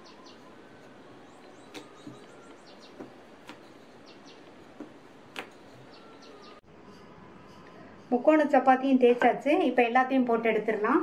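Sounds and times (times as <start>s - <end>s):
bird chirping: 0.0s - 4.7s, 5.4s - 7.1s
rolling pin rolling dough: 0.0s - 6.5s
rolling pin knocking on board: 1.7s - 3.7s.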